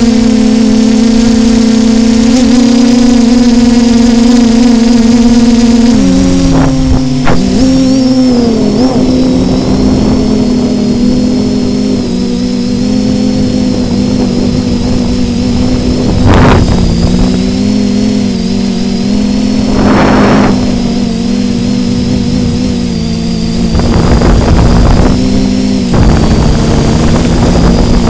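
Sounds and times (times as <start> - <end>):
drone propellers whining: 0.0 - 28.0
wind gusts on microphone: 13.2 - 21.2, 21.9 - 28.0.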